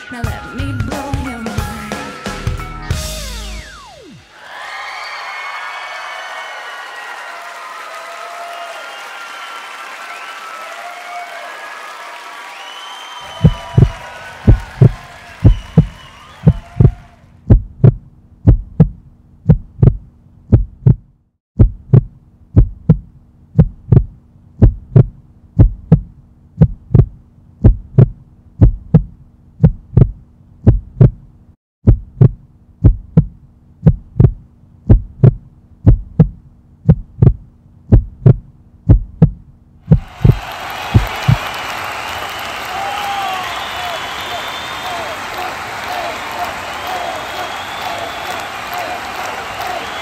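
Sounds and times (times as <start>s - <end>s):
heartbeat double thump: 13.4s - 41.4s.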